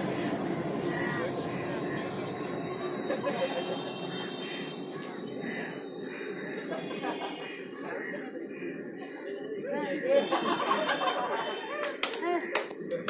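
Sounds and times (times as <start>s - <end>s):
street traffic: 0.0s - 13.0s
woman talking: 12.1s - 12.6s.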